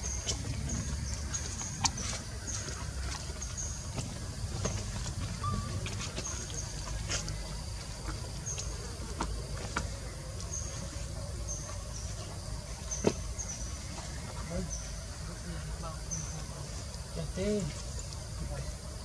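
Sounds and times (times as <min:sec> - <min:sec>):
insects chirping: 0:00.0 - 0:19.0.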